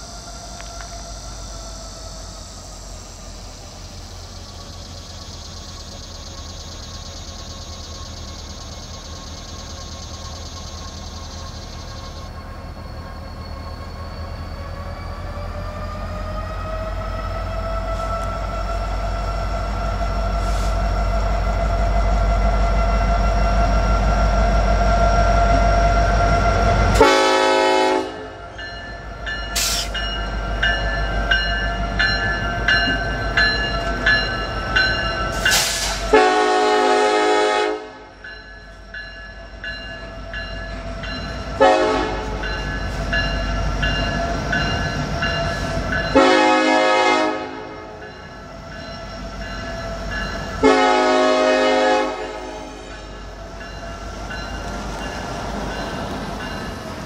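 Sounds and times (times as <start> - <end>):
passing train rumble: 0.0 - 57.0
locomotive horn blasts: 26.9 - 28.4, 36.1 - 38.2, 41.6 - 42.4, 46.1 - 48.0, 50.6 - 53.2.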